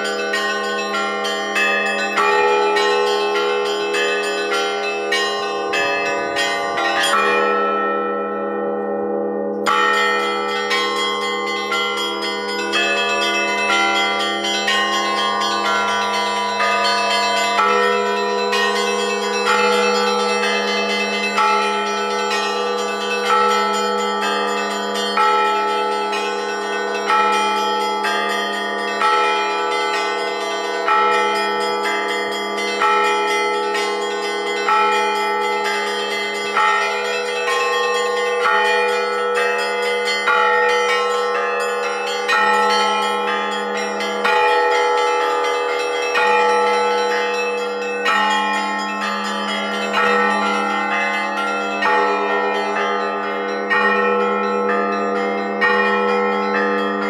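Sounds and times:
heavy church bell strokes: 0.0s - 57.0s.

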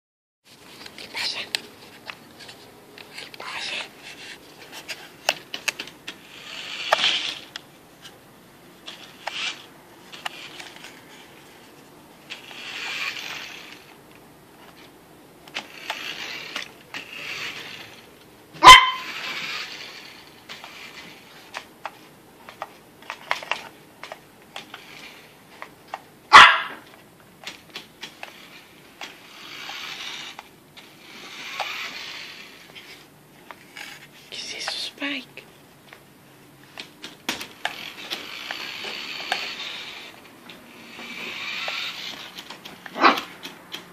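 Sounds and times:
dog barking: 18.6s - 19.1s, 26.3s - 26.8s, 43.0s - 43.3s.

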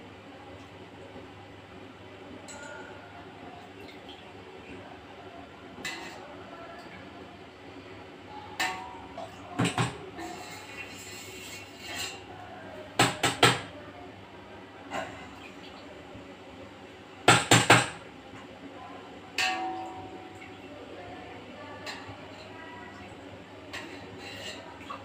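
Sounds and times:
metal pots and utensils clinking: 19.4s - 20.1s.

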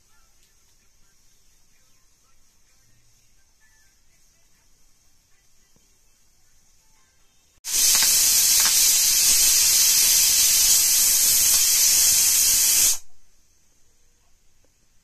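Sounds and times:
pressure cooker steam hissing: 7.6s - 13.1s.

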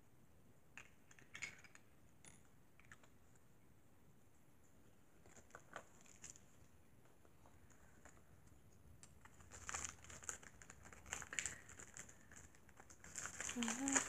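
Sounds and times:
plastic toys and packaging handled: 4.8s - 14.0s.

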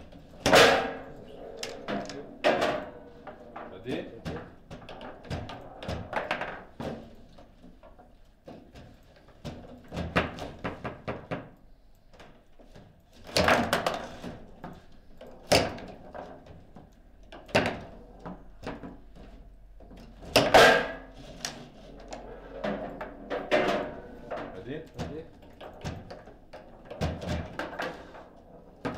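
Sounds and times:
foosball players striking ball: 0.0s - 7.1s, 13.3s - 14.7s, 20.2s - 28.9s
rods banging against table: 22.5s - 24.6s.

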